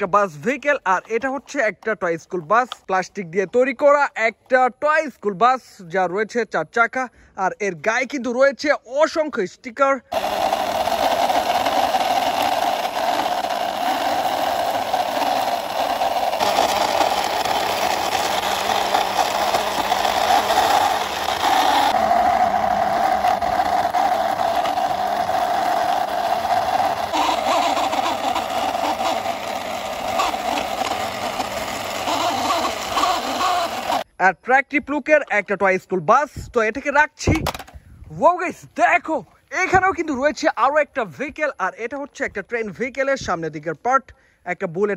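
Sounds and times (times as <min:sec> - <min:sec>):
vehicle engine running: 0:10.2 - 0:34.0.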